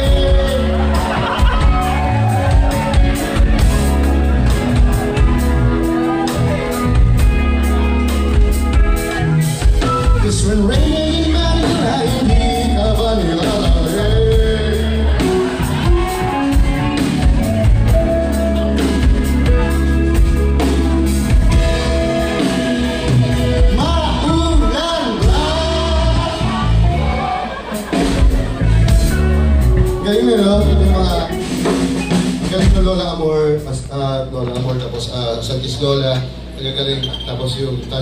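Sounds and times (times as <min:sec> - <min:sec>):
person singing lead vocals: 0:00.0 - 0:02.6, 0:10.0 - 0:16.1, 0:21.9 - 0:27.7
drum kit beat: 0:00.0 - 0:34.0
live rock band playing: 0:00.0 - 0:38.0.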